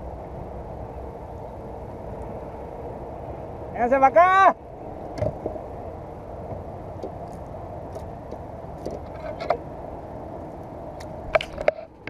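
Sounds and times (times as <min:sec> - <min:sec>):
low background rumble: 0:00.0 - 0:12.0
faint clicks and rustles: 0:10.4 - 0:12.0.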